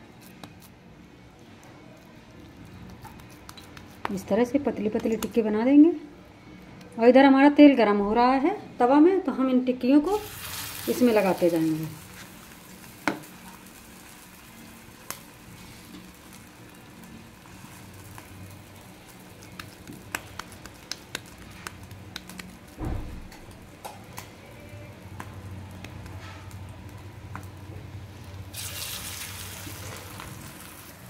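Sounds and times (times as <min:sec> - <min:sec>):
food sizzling in oil: 0:10.1 - 0:22.8, 0:28.5 - 0:31.0.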